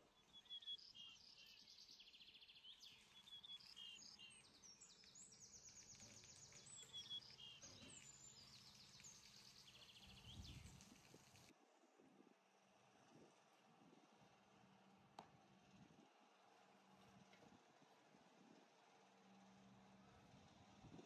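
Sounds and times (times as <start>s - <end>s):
small birds singing: 0.0s - 11.5s.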